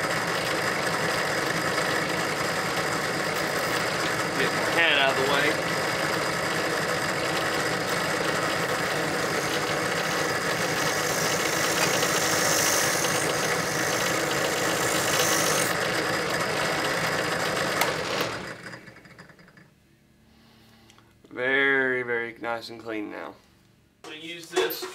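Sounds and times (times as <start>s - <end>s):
drill press sanding metal: 0.0s - 18.5s.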